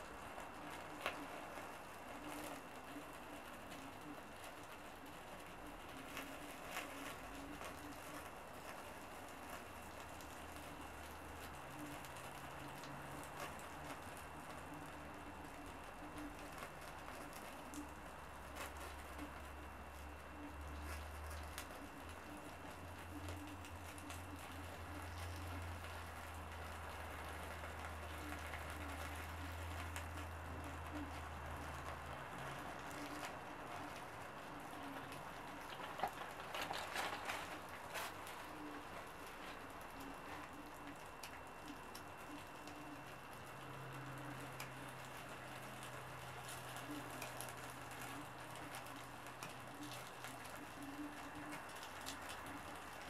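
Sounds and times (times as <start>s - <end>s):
steady low hum: 0.0s - 53.0s
wood fire crackling: 0.0s - 53.0s.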